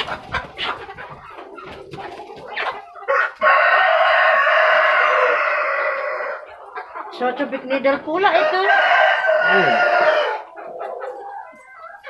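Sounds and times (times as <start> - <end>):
chickens clucking: 0.0 - 12.0
rooster crowing: 3.1 - 6.5, 8.4 - 10.6.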